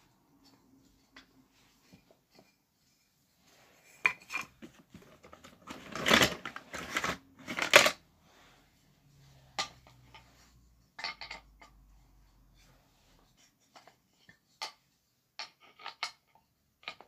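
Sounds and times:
wooden track pieces scraping: 4.3 - 8.0.

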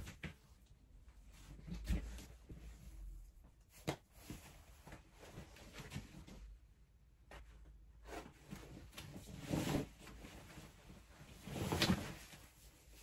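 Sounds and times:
clothes rustling: 0.0 - 13.0
clothes swishing: 8.0 - 13.0.

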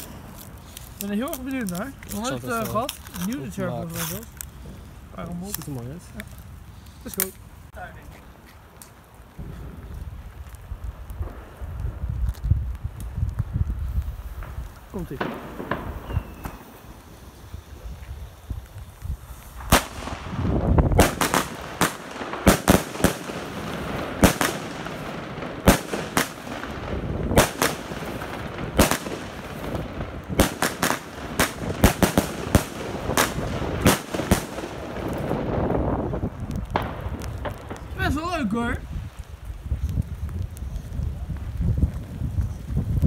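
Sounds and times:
firework crackling: 0.0 - 43.0
firework shots and bangs: 9.3 - 13.4, 14.3 - 17.4, 19.5 - 38.6.

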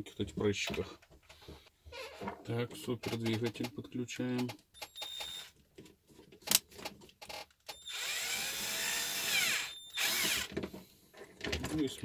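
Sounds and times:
cordless drill whine: 7.7 - 10.5.

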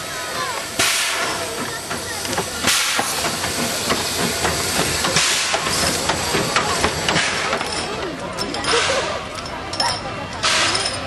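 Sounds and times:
steam hiss: 0.0 - 7.9
steam locomotive chuffs: 0.0 - 11.0.

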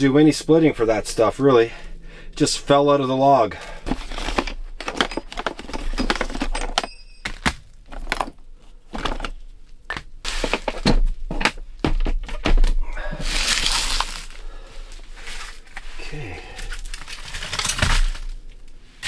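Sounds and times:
small items clattering in plastic box: 3.5 - 14.3, 16.7 - 18.4
rustling: 13.1 - 19.0.

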